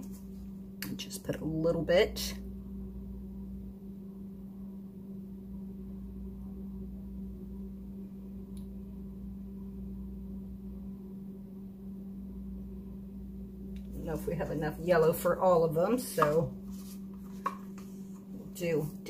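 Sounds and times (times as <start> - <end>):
low background hum: 0.0 - 19.0
faint click: 8.5 - 8.7.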